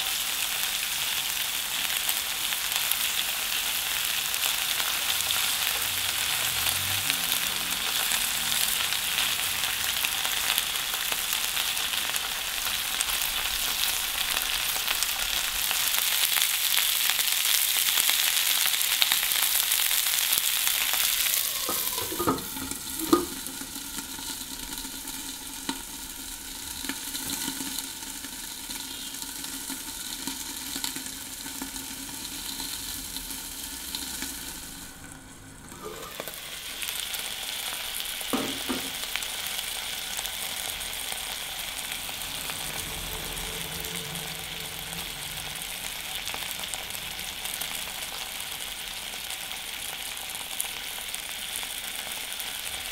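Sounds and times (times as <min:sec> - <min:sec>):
peppers sizzling in a frying pan: 0:00.0 - 0:52.9
glass pan lid clanking: 0:21.5 - 0:23.6, 0:35.7 - 0:36.5, 0:38.4 - 0:39.0.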